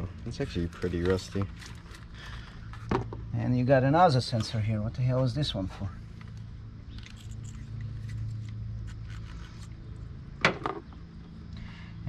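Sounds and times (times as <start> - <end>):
steady low hum: 0.0 - 12.0
screwdriver clicking and scraping: 6.9 - 9.8.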